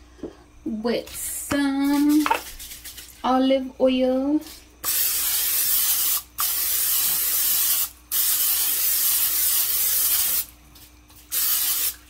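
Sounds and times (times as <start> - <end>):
cooking spray hissing: 4.4 - 10.6, 11.2 - 12.0.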